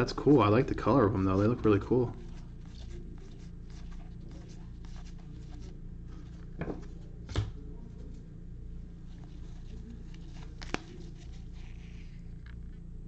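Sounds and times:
steady low hum: 0:00.0 - 0:13.0
cards sliding and flicking: 0:09.8 - 0:12.8.

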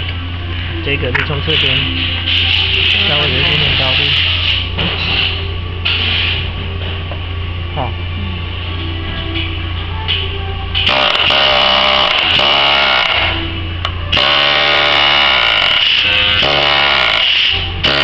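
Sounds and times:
powered nail remover buzzing: 0:10.8 - 0:13.4, 0:14.1 - 0:18.0.

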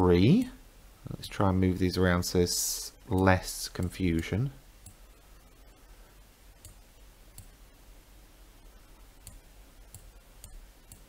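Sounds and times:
computer mouse clicks: 0:06.6 - 0:07.6, 0:09.2 - 0:11.0.

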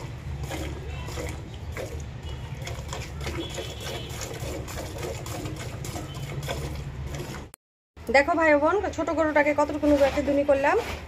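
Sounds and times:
milk squirting into pail: 0:00.0 - 0:07.6.

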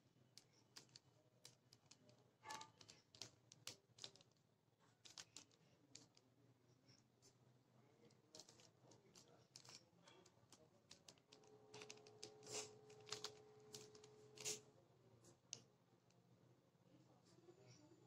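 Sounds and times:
plastic puzzle cube clicking: 0:00.4 - 0:04.4, 0:05.0 - 0:06.2, 0:08.1 - 0:14.6.

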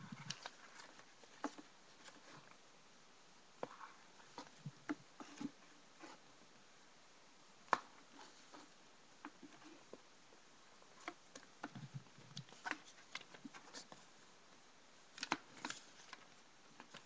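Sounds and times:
paper pages rustling: 0:00.0 - 0:02.6, 0:15.1 - 0:17.0.

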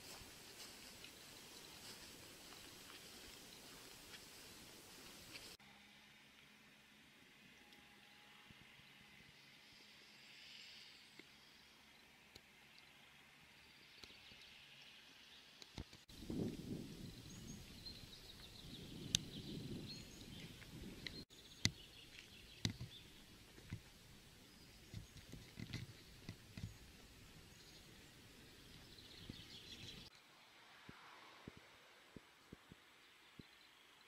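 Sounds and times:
small birds chirping: 0:13.6 - 0:30.1.

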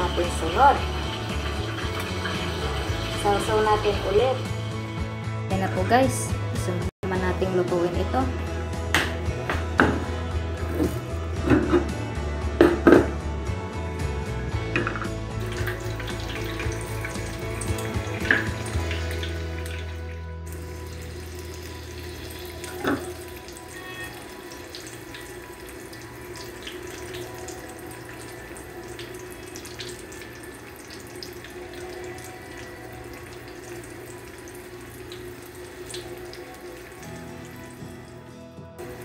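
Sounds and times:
food deep-frying in oil: 0:00.0 - 0:04.4, 0:15.4 - 0:37.8
knock: 0:12.6 - 0:13.2.

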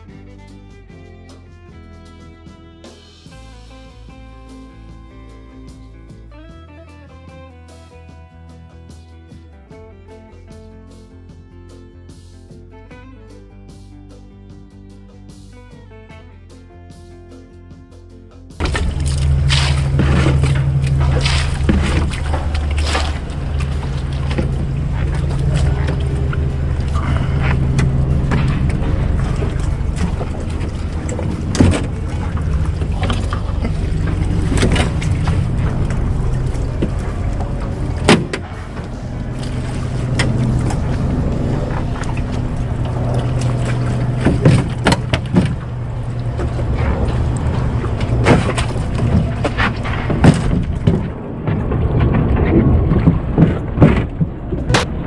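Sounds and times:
footsteps on metal boat hull: 0:18.6 - 0:55.0
low hum: 0:18.6 - 0:55.0.

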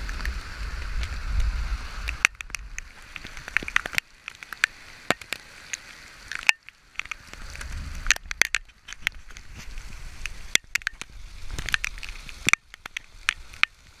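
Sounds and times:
wind rumble on microphone: 0:00.0 - 0:04.0, 0:07.0 - 0:13.8
heavy rain striking camera: 0:00.0 - 0:14.0.

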